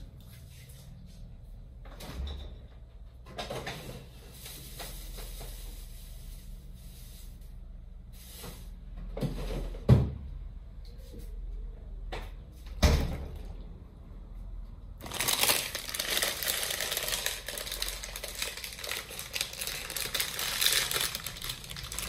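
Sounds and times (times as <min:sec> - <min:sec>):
kitchen knocks and clunks: 0:09.0 - 0:10.3.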